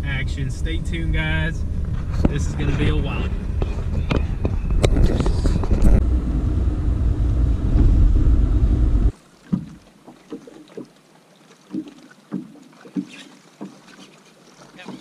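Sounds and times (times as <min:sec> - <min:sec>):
loud low rumble: 0:00.0 - 0:09.1.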